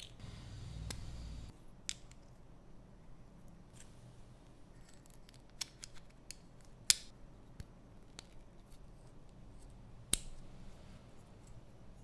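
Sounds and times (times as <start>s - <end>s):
sharp plastic snaps: 5.3s - 8.4s.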